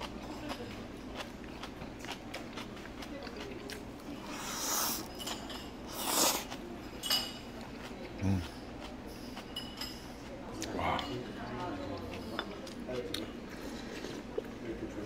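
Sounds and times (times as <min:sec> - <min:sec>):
chewing food: 0:00.0 - 0:15.0
slurping food: 0:04.2 - 0:05.1, 0:05.9 - 0:06.6.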